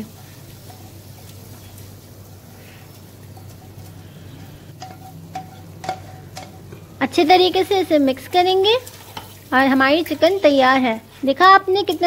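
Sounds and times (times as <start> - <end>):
low steady hum: 0.0 - 12.0
spatula knocking and scraping pan: 4.8 - 9.5.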